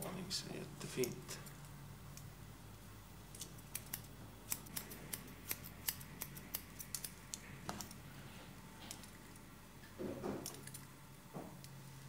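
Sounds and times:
scissors snipping hair: 3.3 - 8.0.

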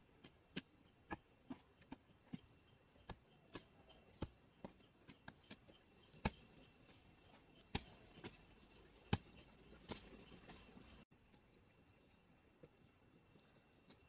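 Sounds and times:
hoe chopping into soil: 7.6 - 8.4.

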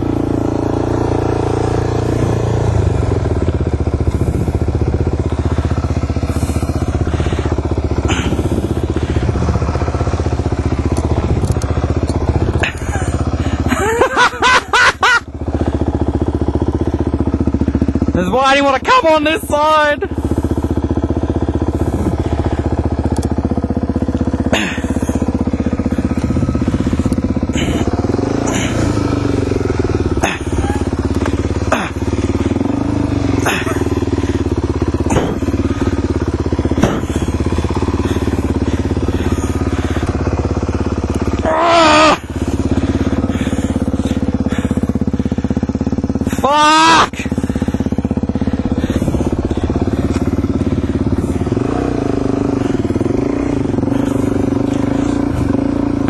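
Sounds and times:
dirt bike engine revving: 0.0 - 56.0
person speaking: 18.1 - 20.2.

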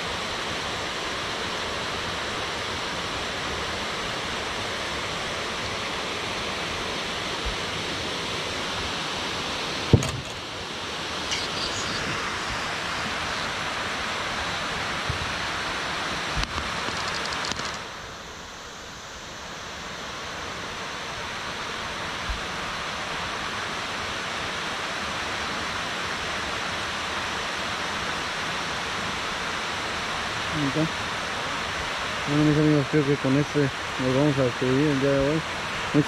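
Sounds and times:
water rushing down spillway: 0.0 - 18.0, 19.3 - 36.0.

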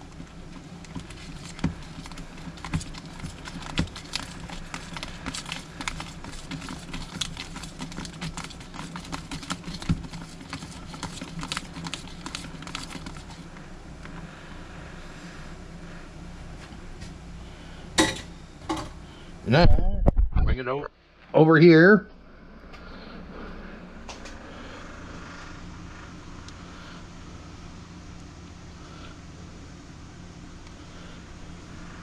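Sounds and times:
whisk clicking against plastic tub: 0.0 - 13.5.

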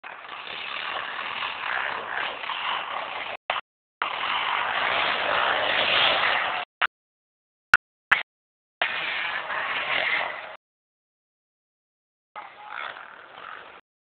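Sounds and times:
rough atv engine running: 0.0 - 3.4.

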